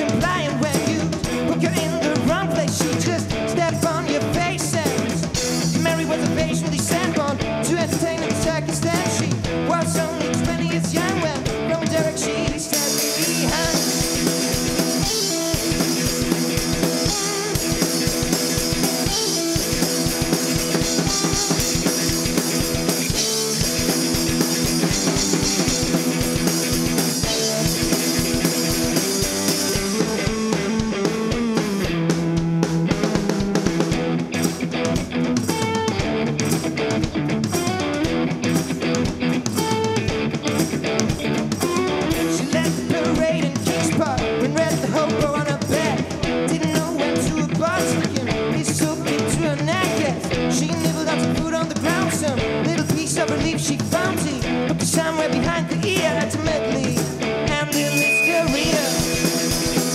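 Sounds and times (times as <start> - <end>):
drum kit beat: 0.0 - 59.9
electric guitar: 0.0 - 59.9
cymbals: 57.8 - 59.9.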